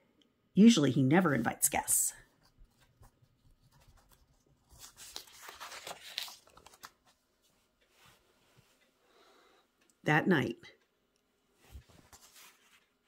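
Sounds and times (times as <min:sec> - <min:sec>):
faint paper crackles: 0:02.2 - 0:08.2, 0:11.6 - 0:13.0
paper page rustling: 0:02.3 - 0:07.6, 0:11.7 - 0:13.0.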